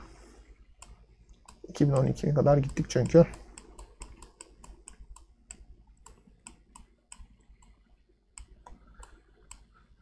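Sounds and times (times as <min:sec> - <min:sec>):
faint computer clicks: 0:00.8 - 0:07.8.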